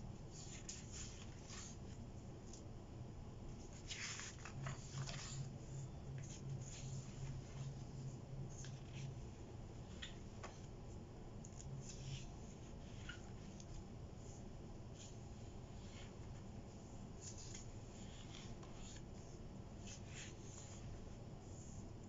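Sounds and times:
paper pages rustling: 0:00.3 - 0:02.7, 0:03.5 - 0:10.7, 0:15.0 - 0:21.0.

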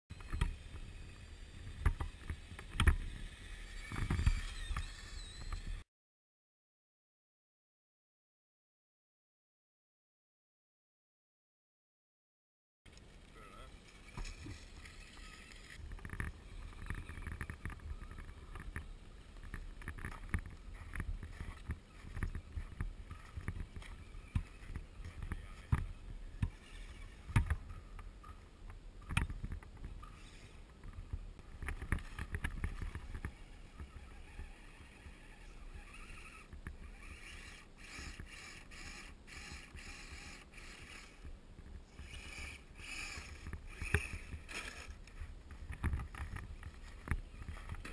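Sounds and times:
rc truck motor and gears: 0:00.1 - 0:05.8, 0:12.9 - 0:47.9
trucks bumping over snow: 0:13.8 - 0:28.4, 0:29.0 - 0:47.9.

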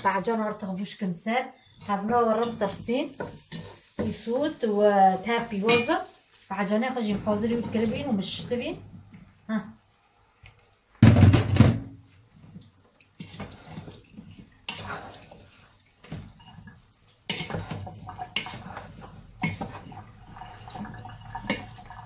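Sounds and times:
spoon knocking and scraping pot: 0:01.8 - 0:04.3, 0:05.6 - 0:06.0, 0:13.2 - 0:15.4, 0:16.0 - 0:22.0
wooden spoon stirring in pot: 0:01.8 - 0:09.4, 0:12.1 - 0:22.0.

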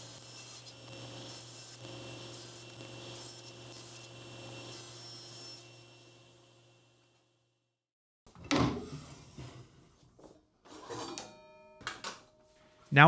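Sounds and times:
table saw running: 0:00.0 - 0:07.4.

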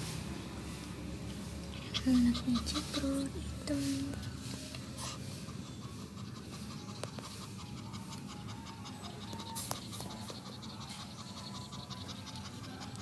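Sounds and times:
rustle: 0:00.0 - 0:06.7
cat panting: 0:00.7 - 0:13.0.

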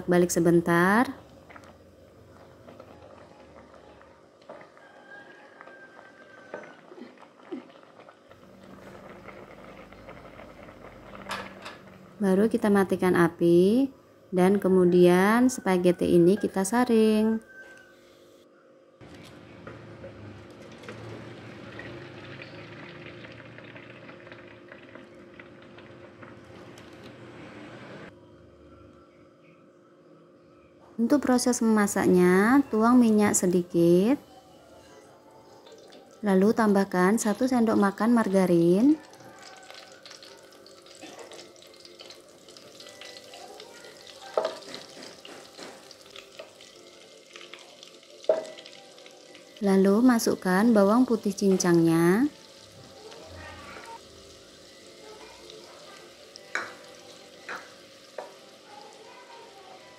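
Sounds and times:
margarine sizzling in oil: 0:19.0 - 0:28.1, 0:35.4 - 0:59.9
water pouring into colander: 0:20.2 - 0:27.1.

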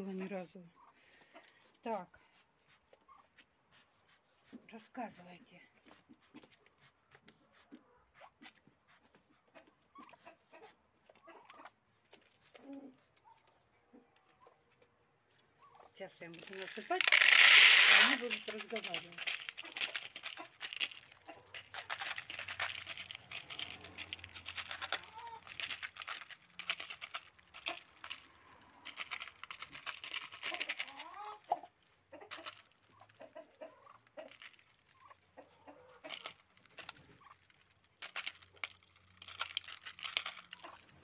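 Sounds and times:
ducks calling softly: 0:00.1 - 0:05.2, 0:05.8 - 0:41.0
bills clicking on grain and plastic: 0:16.2 - 0:31.6, 0:32.2 - 0:33.1, 0:34.2 - 0:34.9, 0:36.0 - 0:41.0.

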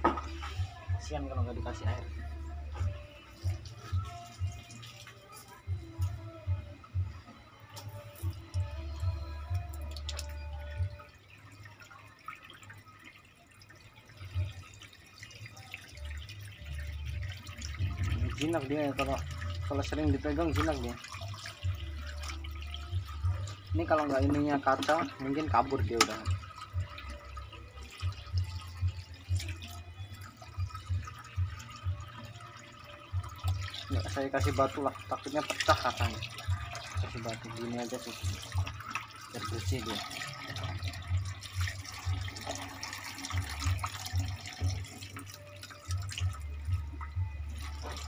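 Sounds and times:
water drips and plinks: 0:00.0 - 0:48.0
water trickling into aquarium: 0:00.0 - 0:48.0.

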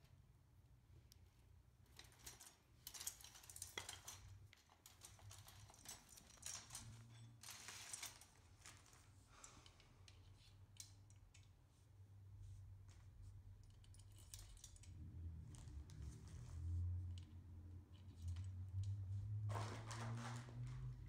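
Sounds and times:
small metal parts clicking: 0:01.9 - 0:08.4, 0:09.4 - 0:11.5, 0:13.6 - 0:16.4.

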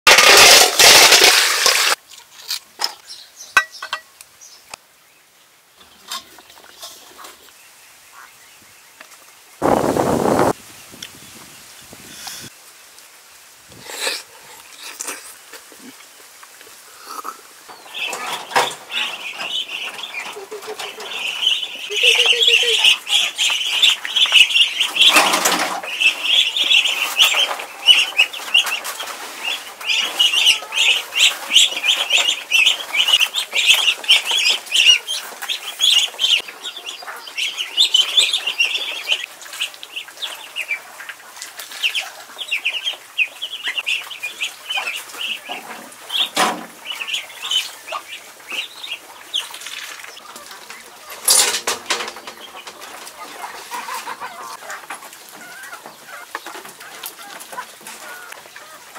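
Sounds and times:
ducklings peeping: 0:17.1 - 0:51.3, 0:51.9 - 0:58.9.

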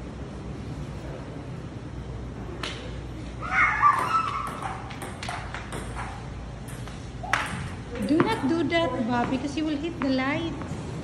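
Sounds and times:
ping-pong ball on tile floor: 0:03.5 - 0:10.8.

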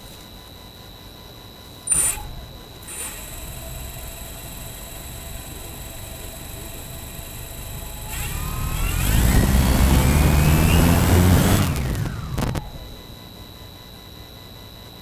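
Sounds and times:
quadcopter motors whining: 0:01.9 - 0:13.0.

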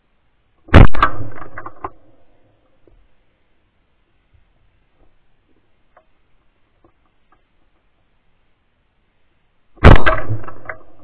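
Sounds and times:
shotgun blast with echo: 0:00.7 - 0:01.8, 0:09.8 - 0:11.0.

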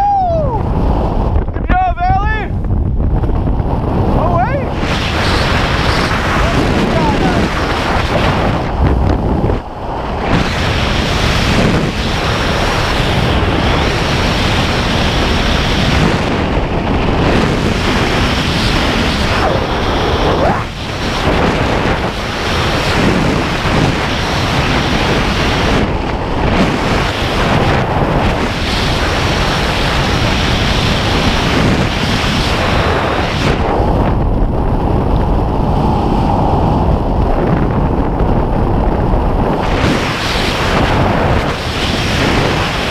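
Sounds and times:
wind rushing over microphone: 0:00.0 - 0:42.9.

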